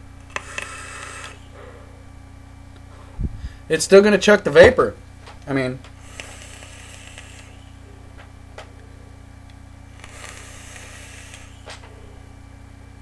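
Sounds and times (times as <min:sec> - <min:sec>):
steady low hum: 0:00.0 - 0:13.0
airy hiss of vape draw: 0:00.3 - 0:01.5, 0:06.0 - 0:07.8, 0:09.9 - 0:11.8
breathy exhale: 0:00.6 - 0:02.1, 0:02.9 - 0:03.7, 0:06.0 - 0:07.8, 0:10.0 - 0:11.7.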